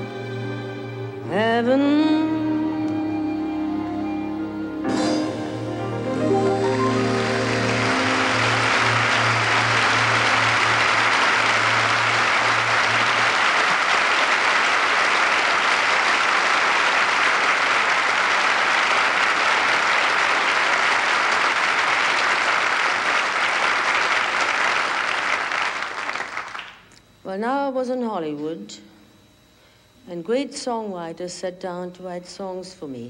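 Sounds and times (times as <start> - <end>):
sustained low band chord: 4.3 - 13.5
audience applauding: 6.2 - 26.9.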